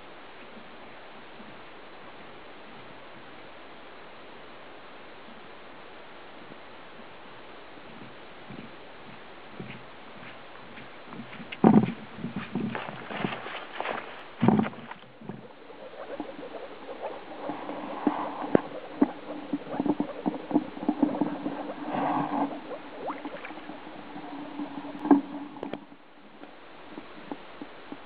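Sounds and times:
footsteps on wooden boardwalk: 7.9 - 15.5.

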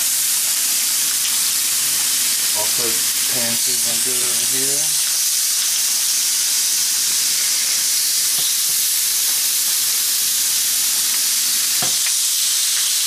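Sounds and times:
pork sizzling on a grill pan: 0.0 - 13.0
faint knocks on a pan: 11.8 - 12.0.

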